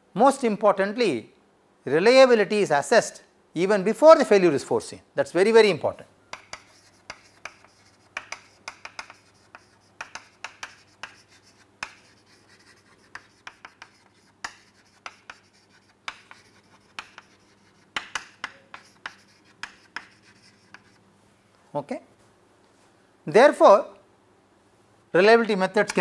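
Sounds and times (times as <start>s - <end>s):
chalk tapping and scratching: 6.3s - 21.0s.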